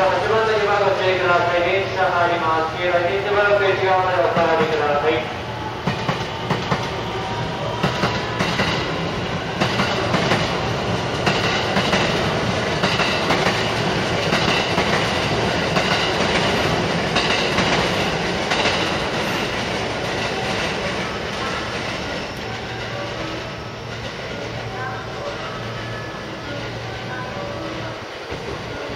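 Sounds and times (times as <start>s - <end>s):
train running rumble: 0.0s - 28.9s
train wheels clicking over rail joints: 7.8s - 23.0s.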